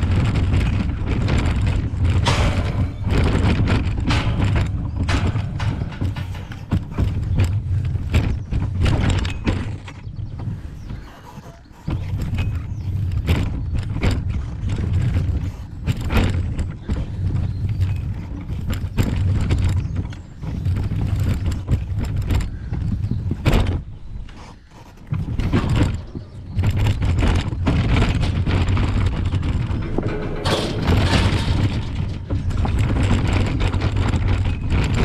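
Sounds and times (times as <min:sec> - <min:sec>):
wheelchair wheels rumbling: 0:00.0 - 0:35.0
wheels knocking over rails: 0:00.0 - 0:35.0.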